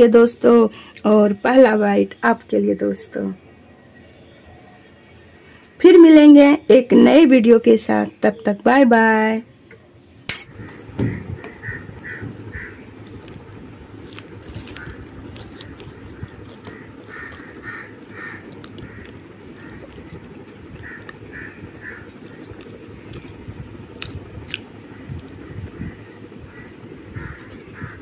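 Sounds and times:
steady low hum: 0:00.0 - 0:28.0
bird cawing: 0:10.5 - 0:13.1, 0:14.4 - 0:22.7, 0:24.9 - 0:28.0
crisp food tearing and crackling: 0:13.1 - 0:21.2, 0:22.1 - 0:24.7, 0:26.5 - 0:27.9.

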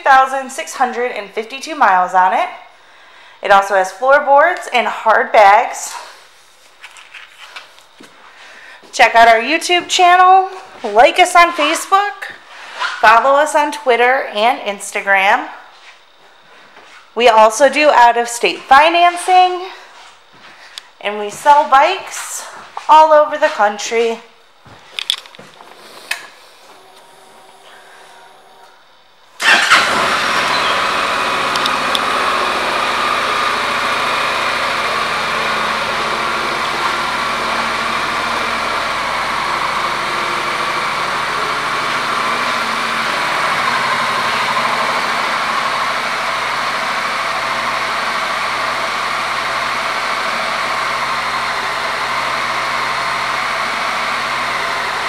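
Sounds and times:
motorcycle engine starting and idling: 0:26.1 - 0:55.0.

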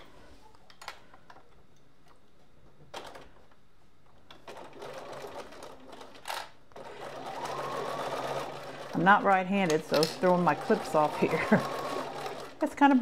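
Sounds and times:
sewing machine stitching: 0:04.4 - 0:13.0.

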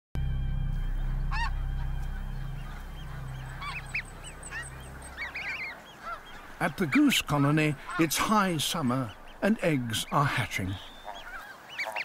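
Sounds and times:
low steady rumble: 0:00.2 - 0:06.6
geese honking: 0:00.2 - 0:12.0.

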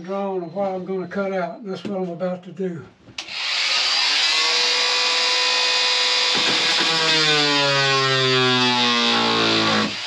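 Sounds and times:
power saw cutting plywood: 0:03.2 - 0:10.0.

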